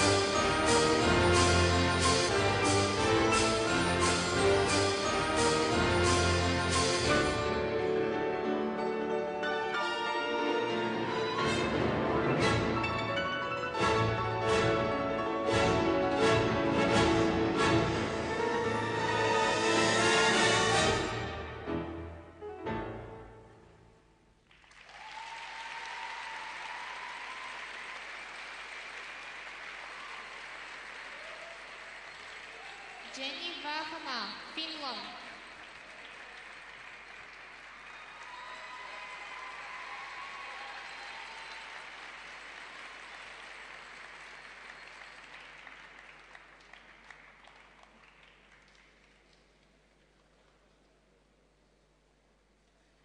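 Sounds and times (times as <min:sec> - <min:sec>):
crowd applause: 0:24.5 - 0:33.4, 0:35.0 - 0:50.8.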